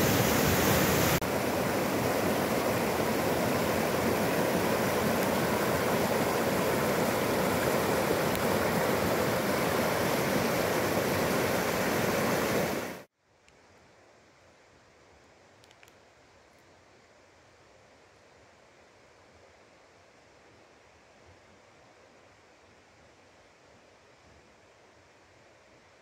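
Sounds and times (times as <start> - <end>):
river water rushing: 0.0 - 13.1.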